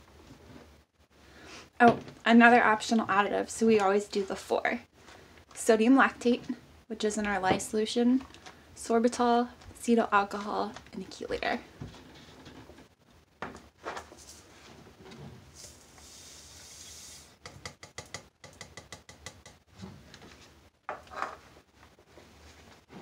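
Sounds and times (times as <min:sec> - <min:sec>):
granules pouring into plastic beaker: 0:15.5 - 0:17.4
plastic cups knocking: 0:17.4 - 0:19.6.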